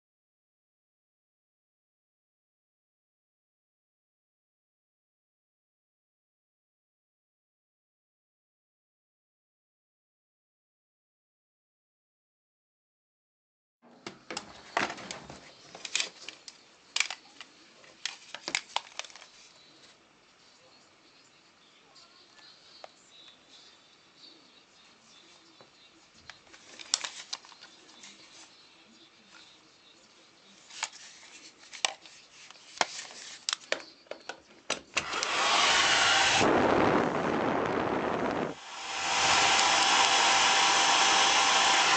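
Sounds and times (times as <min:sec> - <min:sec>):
hair dryer blowing: 0:35.0 - 0:41.9.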